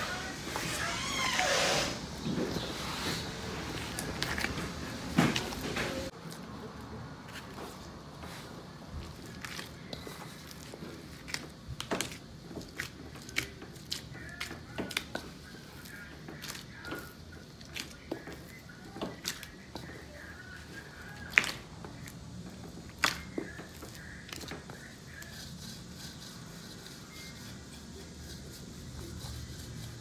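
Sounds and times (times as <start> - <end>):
dough being kneaded in a bowl: 7.3 - 30.0.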